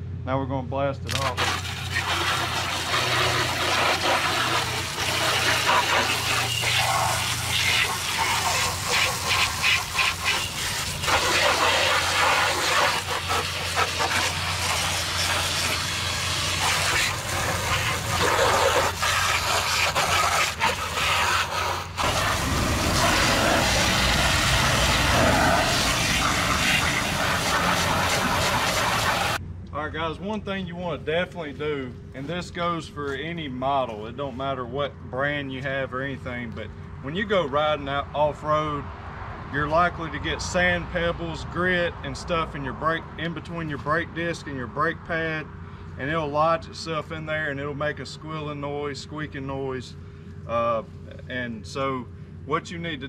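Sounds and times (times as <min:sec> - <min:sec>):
hose spray hissing and splashing: 0:01.1 - 0:29.4.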